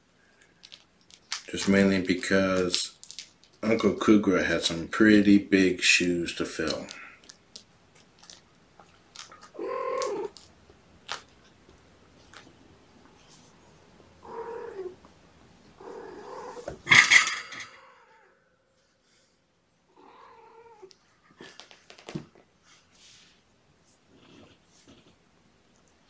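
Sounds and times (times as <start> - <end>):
kittens mewing: 9.3 - 10.5, 14.2 - 15.0, 15.8 - 18.4.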